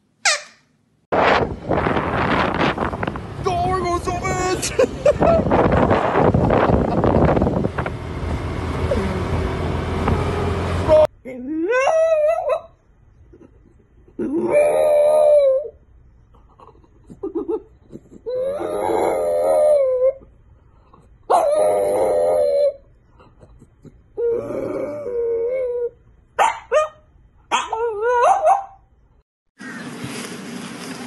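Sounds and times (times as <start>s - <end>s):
steady rushing noise: 1.1s - 8.4s
dog howling: 14.3s - 15.8s, 18.3s - 20.2s, 21.3s - 22.8s, 27.5s - 28.7s.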